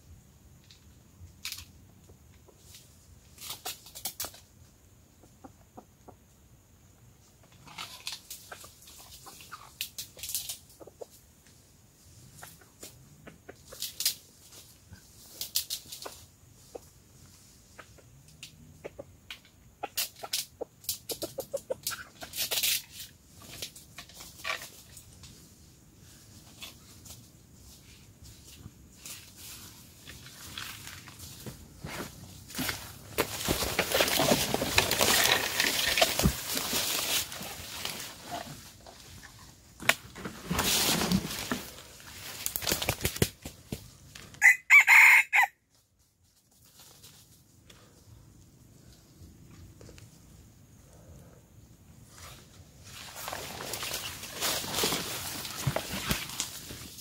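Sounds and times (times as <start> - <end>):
rooster clucking: 18.7 - 19.2, 19.8 - 22.5, 44.4 - 45.5
rustling in dry leaves: 20.1 - 50.5, 52.0 - 57.0
scuffling on dry leaves: 29.0 - 38.6, 52.2 - 57.0
rooster crowing: 44.4 - 45.6.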